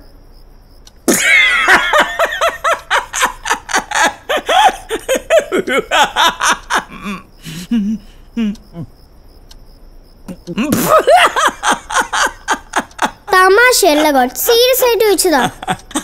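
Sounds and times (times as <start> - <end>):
man laughing heartily: 1.1 - 8.6, 10.5 - 13.4, 15.4 - 16.0.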